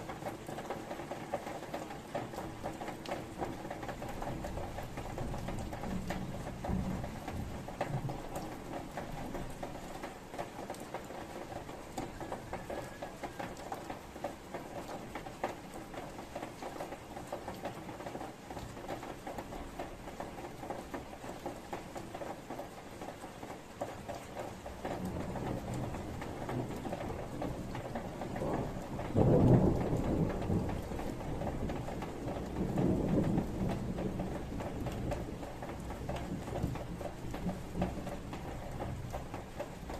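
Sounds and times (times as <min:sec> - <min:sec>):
rain pattering: 0:00.0 - 0:39.9
thunder rumbling: 0:25.0 - 0:39.9.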